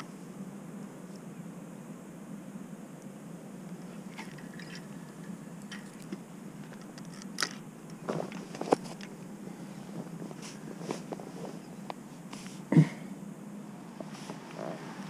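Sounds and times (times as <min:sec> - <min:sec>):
steady low hum: 0:00.0 - 0:15.0
fishing rod and reel clicks: 0:05.7 - 0:07.6.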